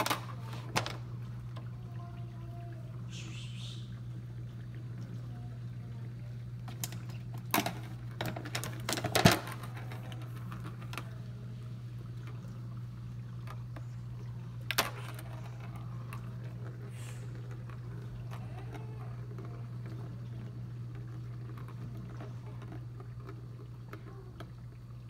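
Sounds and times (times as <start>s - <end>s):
ball clattering on plastic track: 0.0s - 1.2s, 6.6s - 11.3s, 13.4s - 24.6s
steady low hum: 0.0s - 25.0s.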